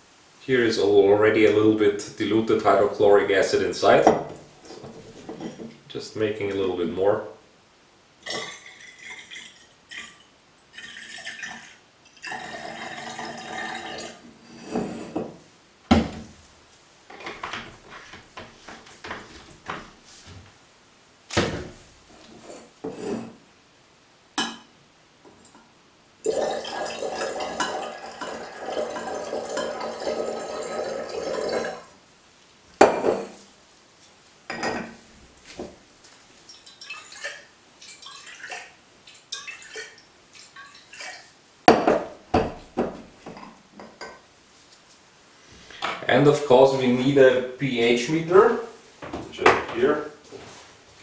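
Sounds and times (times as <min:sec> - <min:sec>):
liquid pouring into glass flask: 0:08.4 - 0:14.2, 0:26.2 - 0:31.9, 0:36.5 - 0:40.0
glassware clinking: 0:24.4 - 0:24.7, 0:26.3 - 0:31.8, 0:34.5 - 0:35.0, 0:43.3 - 0:44.2.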